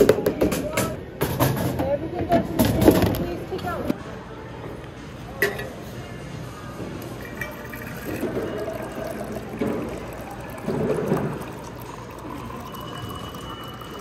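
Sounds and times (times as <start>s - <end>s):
water pouring into metal bottle: 7.2s - 14.0s.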